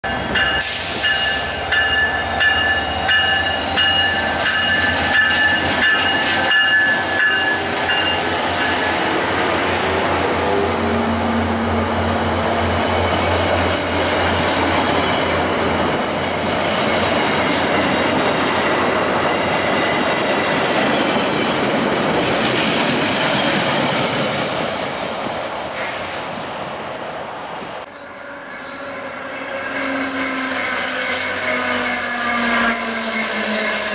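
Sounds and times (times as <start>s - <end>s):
high-pitched ringing tones: 0.0s - 8.9s
diesel locomotive engine: 0.0s - 33.9s.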